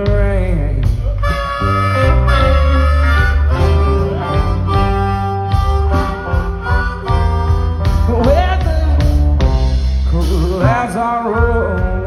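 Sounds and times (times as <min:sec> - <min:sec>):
live band playing: 0:00.0 - 0:12.0
blues harmonica: 0:00.9 - 0:10.1.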